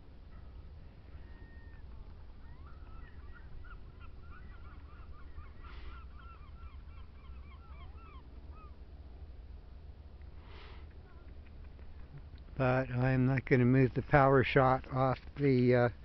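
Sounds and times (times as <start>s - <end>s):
low wind rumble: 0.0s - 16.0s
waterfowl flock calling: 1.1s - 8.8s.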